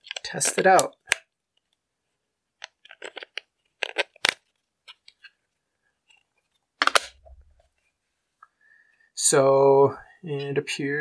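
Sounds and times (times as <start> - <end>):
plastic case snapping shut: 6.8 - 7.2.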